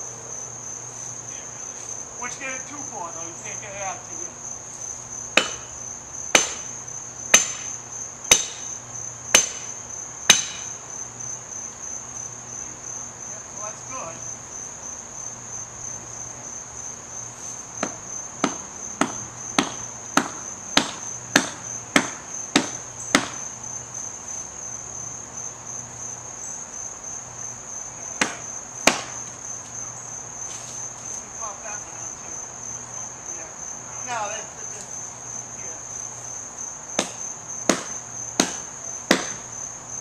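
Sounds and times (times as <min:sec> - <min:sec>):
crickets trilling: 0:00.0 - 0:40.0
axe chopping wood: 0:05.4 - 0:05.7, 0:06.3 - 0:06.7, 0:07.3 - 0:08.7, 0:09.4 - 0:10.7, 0:17.8 - 0:23.4, 0:28.2 - 0:29.2, 0:37.0 - 0:39.5.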